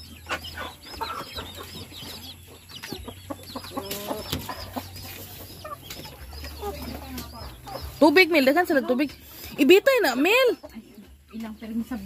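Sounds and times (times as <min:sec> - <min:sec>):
chickens clucking and calling: 0:00.0 - 0:12.0
high peeping calls: 0:00.0 - 0:12.0.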